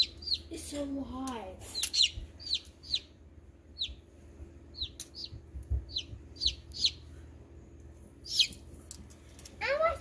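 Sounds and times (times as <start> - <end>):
chick peeping: 0.0 - 0.5, 1.6 - 4.1, 4.7 - 7.1, 8.2 - 8.6.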